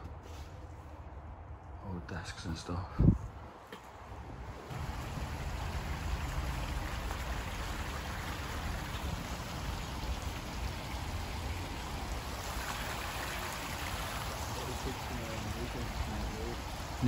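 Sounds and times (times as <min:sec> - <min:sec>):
flowing water rushing: 0:04.5 - 0:17.0.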